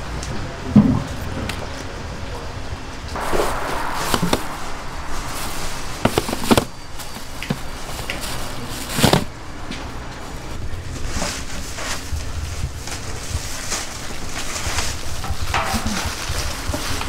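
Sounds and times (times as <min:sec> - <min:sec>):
sharp knock: 0:03.2 - 0:07.7
low steady hum: 0:03.2 - 0:08.8
plastic sheeting crinkling: 0:11.0 - 0:17.0.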